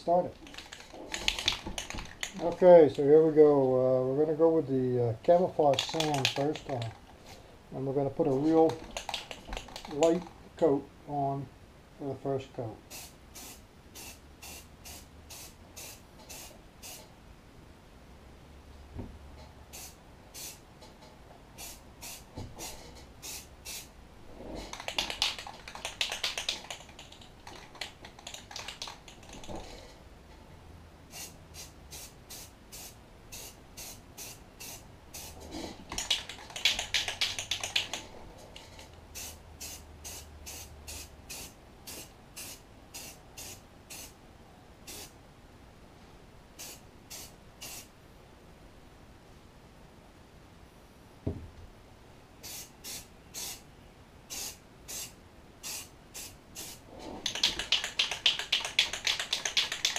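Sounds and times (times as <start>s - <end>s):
aerosol spray can spraying: 5.8s - 6.8s, 8.7s - 10.0s, 12.9s - 17.1s, 19.7s - 20.6s, 21.6s - 23.9s, 24.7s - 29.5s, 31.1s - 35.4s, 36.0s - 38.0s, 39.2s - 44.1s, 46.6s - 47.9s, 52.4s - 53.6s, 54.3s - 59.9s.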